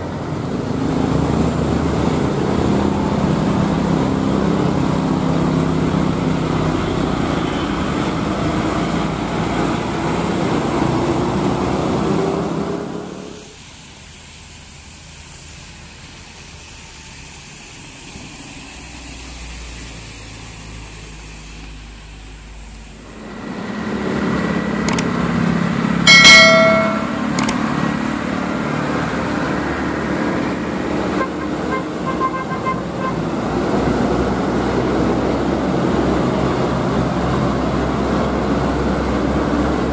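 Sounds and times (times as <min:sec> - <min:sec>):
diesel trucks driving past: 0:00.0 - 0:39.9
traffic noise: 0:00.0 - 0:39.9
vehicle horn toot: 0:31.2 - 0:33.2.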